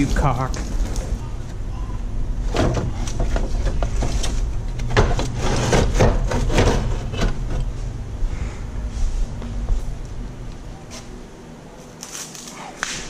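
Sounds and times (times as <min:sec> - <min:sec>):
plastic scraping and knocking: 0:02.5 - 0:07.7.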